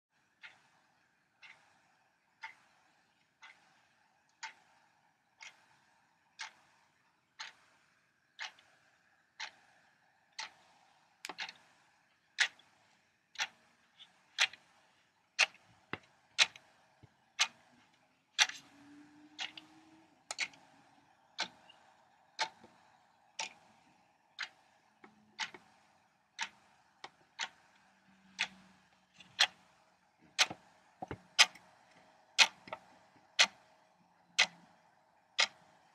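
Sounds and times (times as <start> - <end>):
faint steady hum: 0.1 - 35.9
clock ticking: 0.2 - 35.9.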